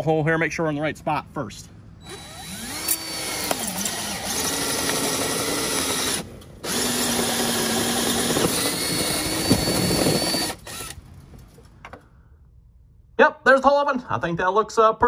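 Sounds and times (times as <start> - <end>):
power drill boring into wall: 2.0 - 11.0.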